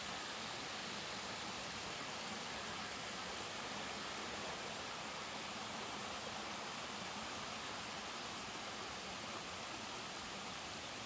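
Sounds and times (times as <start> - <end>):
stream and waterfall rushing: 0.0 - 11.0.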